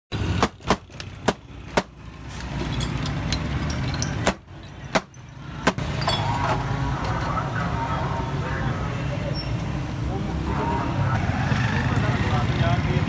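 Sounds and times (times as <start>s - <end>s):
glass bottles popping open: 2.5s - 6.6s.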